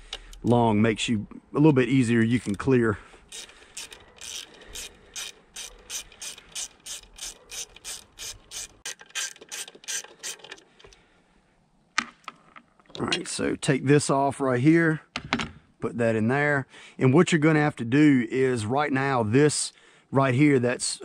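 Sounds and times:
socket ratchet clicking: 0:03.3 - 0:11.0.

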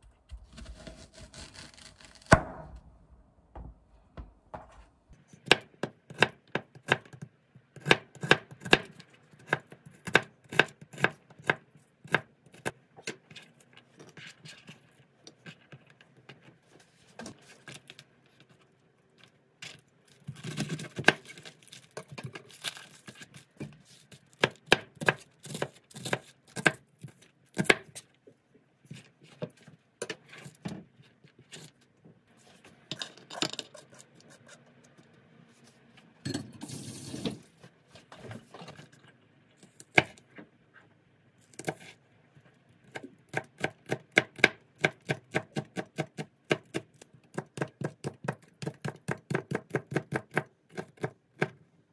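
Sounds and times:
crunchy cabbage cutting: 0:00.3 - 0:02.4.

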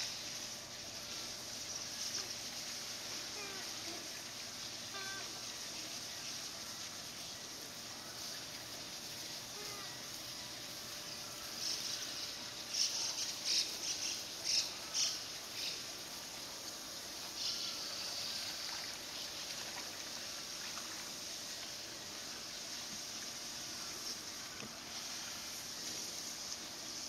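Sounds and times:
short hissing spurts: 0:00.0 - 0:06.3, 0:20.4 - 0:27.0
garden hose water hissing: 0:00.0 - 0:27.0.

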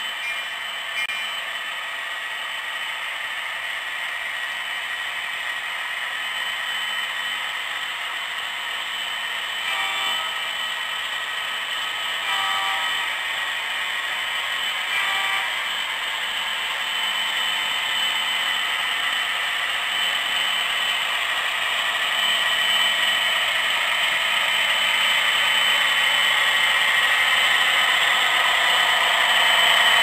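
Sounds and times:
brief tones: 0:00.0 - 0:01.5, 0:09.6 - 0:10.5, 0:12.2 - 0:13.1, 0:14.9 - 0:15.7
model trains whirring and clattering: 0:00.0 - 0:30.0.

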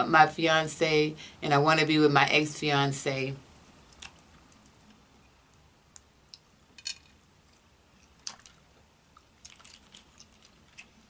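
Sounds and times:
chewing: 0:08.0 - 0:11.0.

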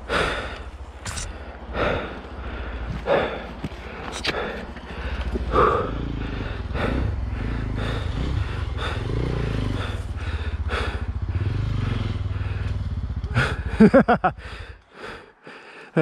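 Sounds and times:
dirt bike engine revving: 0:04.4 - 0:14.8.

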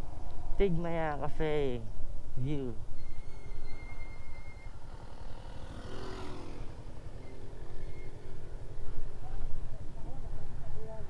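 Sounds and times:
motorcycle engine at low revs: 0:04.7 - 0:10.9.

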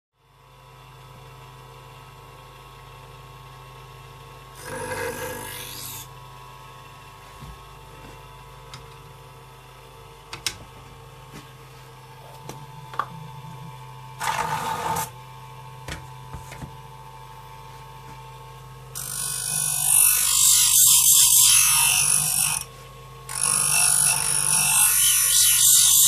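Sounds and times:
bench grinder hum: 0:00.6 - 0:26.0
blade on grinding wheel: 0:04.6 - 0:06.1, 0:12.9 - 0:15.2, 0:19.0 - 0:22.7, 0:23.3 - 0:26.0.

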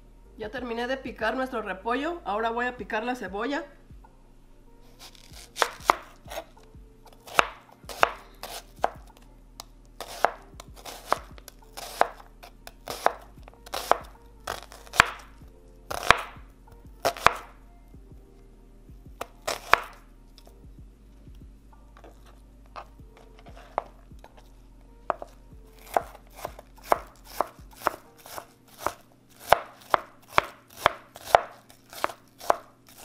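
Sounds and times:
knife slicing onion: 0:04.9 - 0:15.3, 0:15.9 - 0:16.4, 0:17.0 - 0:17.5, 0:19.2 - 0:20.5, 0:25.1 - 0:33.0.

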